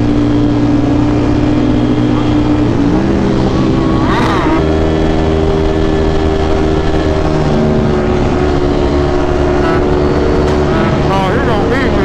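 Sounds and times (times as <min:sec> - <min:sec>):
motorcycle engine at high revs: 0:00.0 - 0:12.0.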